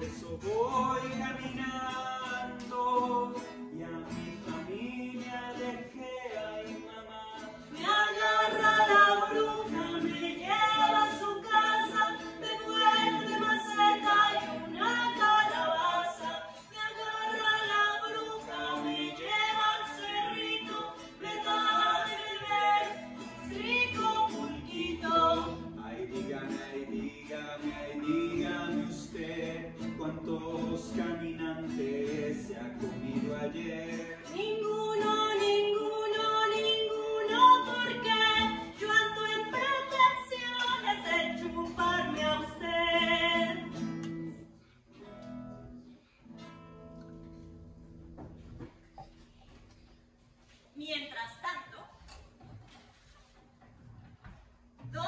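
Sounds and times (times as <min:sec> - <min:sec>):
person singing: 0:00.0 - 0:43.8
acoustic guitar: 0:00.0 - 0:50.7.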